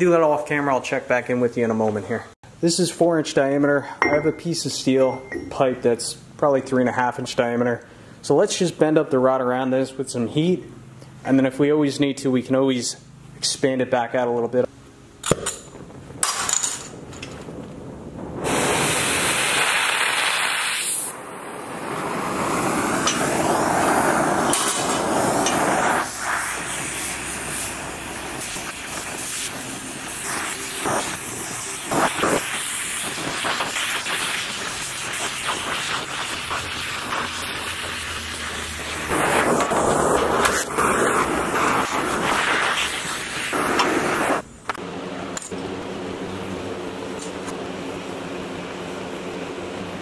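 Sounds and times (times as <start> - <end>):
torch flame hissing: 16.9 - 44.4.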